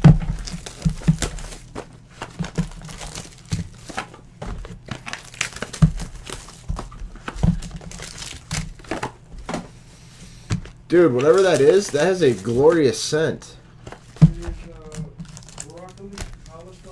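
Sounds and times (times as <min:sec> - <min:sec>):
foil packaging crinkling: 0:00.0 - 0:09.2, 0:11.0 - 0:13.0, 0:13.7 - 0:16.9
cardboard taps and scrapes: 0:13.8 - 0:16.9.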